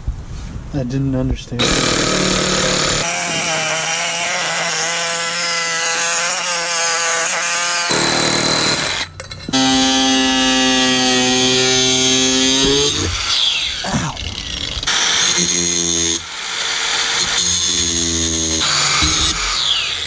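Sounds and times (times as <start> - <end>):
angle grinder whining: 1.6 - 20.0
reciprocating saw cutting metal tubing: 1.6 - 20.0.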